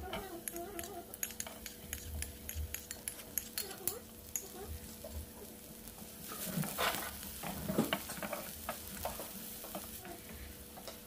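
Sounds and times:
shallots and garlic sizzling in oil: 0:00.0 - 0:11.0
wooden spatula scraping a pan: 0:03.7 - 0:11.0.

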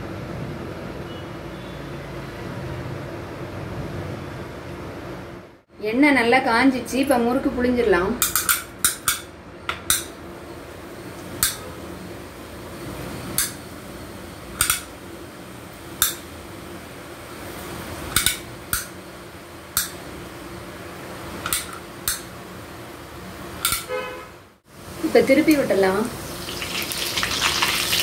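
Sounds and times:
dough sizzling in hot oil: 0:09.9 - 0:23.6, 0:24.6 - 0:28.0.

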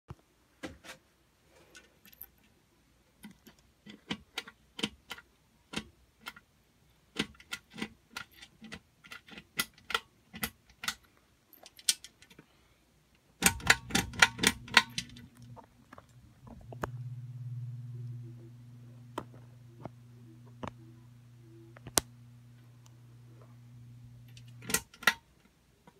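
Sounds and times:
ceiling fan motor humming: 0:13.4 - 0:25.9
sharp clicks and taps: 0:18.0 - 0:21.1, 0:21.7 - 0:23.0.

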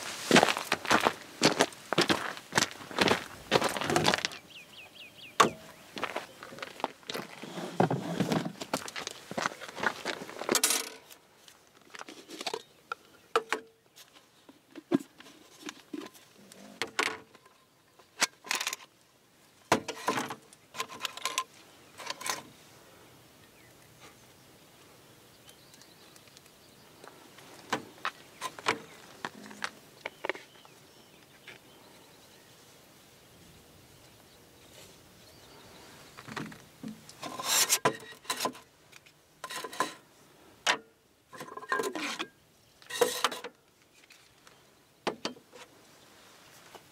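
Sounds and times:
metal stove parts clinking: 0:40.7 - 0:42.3.

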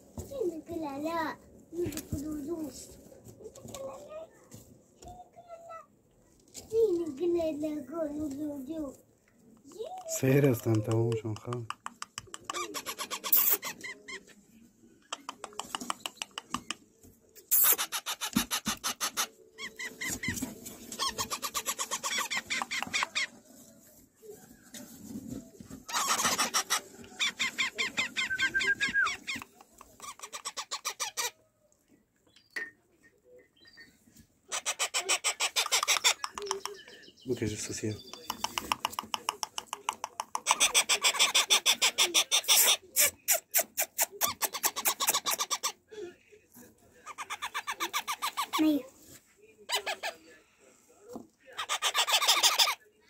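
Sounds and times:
parrot chicks rasping calls: 0:10.5 - 0:14.3, 0:17.5 - 0:23.4, 0:25.8 - 0:31.4, 0:34.4 - 0:36.9, 0:37.6 - 0:45.8, 0:47.0 - 0:48.8, 0:49.7 - 0:50.2, 0:51.6 - 0:52.8.

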